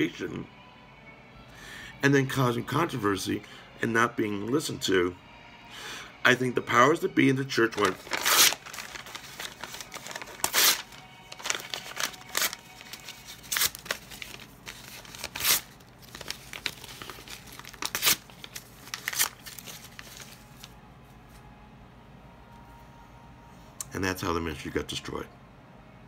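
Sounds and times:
paper being torn: 0:07.7 - 0:20.6.

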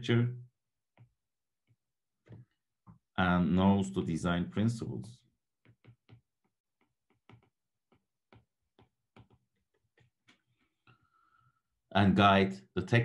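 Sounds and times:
stylus tapping on glass screen: 0:05.6 - 0:10.5.

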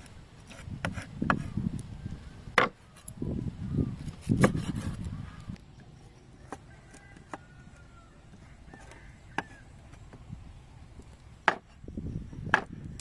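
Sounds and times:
cleaver chopping on wooden block: 0:11.4 - 0:11.7, 0:12.5 - 0:12.8.

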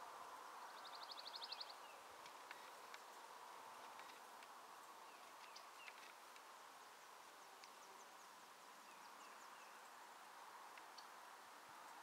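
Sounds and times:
soft hiss: 0:00.0 - 0:12.0.

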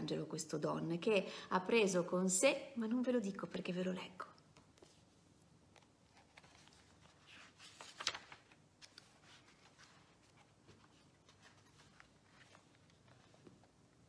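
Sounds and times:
book pages rustling and flicking: 0:04.5 - 0:14.0.

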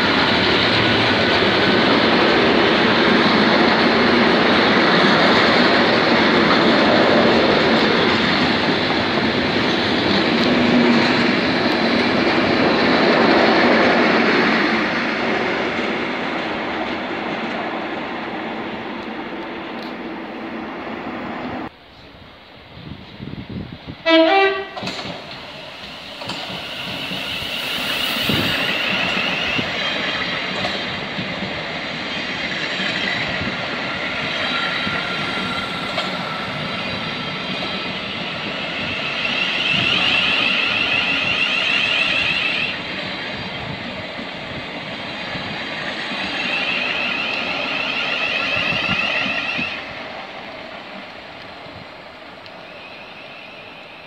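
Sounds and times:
train wheels rumbling on rails: 0:00.0 - 0:54.0
high wheel squeal: 0:25.4 - 0:30.6, 0:34.0 - 0:42.8, 0:45.9 - 0:49.9, 0:52.5 - 0:54.0.

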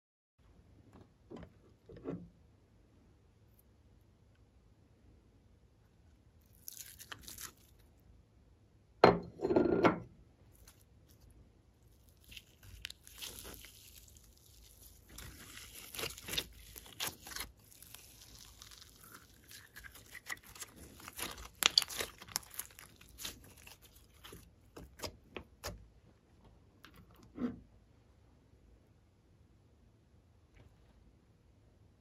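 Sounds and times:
slime crackling and popping: 0:06.4 - 0:07.8, 0:11.9 - 0:25.7.

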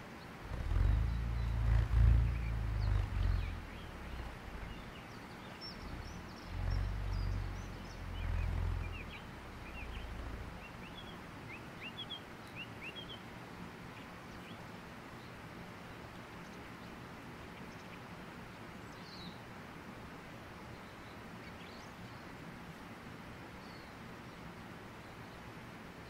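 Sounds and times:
small birds chirping: 0:00.0 - 0:13.3
bullroarer throbbing drone: 0:00.4 - 0:05.0, 0:05.8 - 0:10.9.

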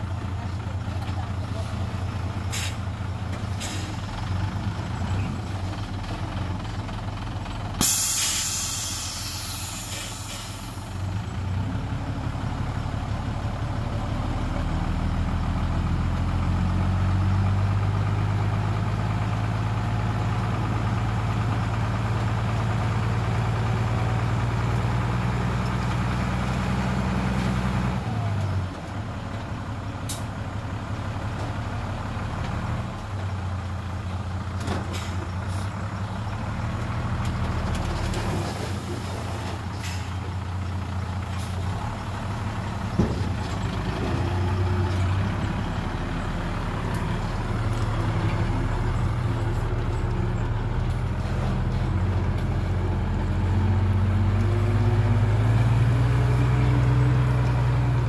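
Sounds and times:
heavy diesel engine working: 0:00.0 - 0:58.0
air hissing: 0:07.8 - 0:10.7.

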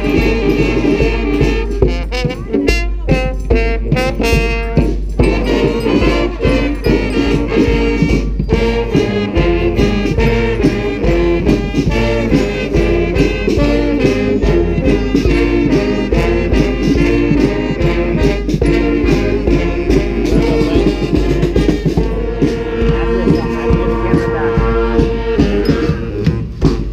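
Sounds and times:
brass band playing rock: 0:00.0 - 0:26.9
hand-drum beat: 0:00.0 - 0:26.9
sousaphone bass line: 0:19.0 - 0:26.9.

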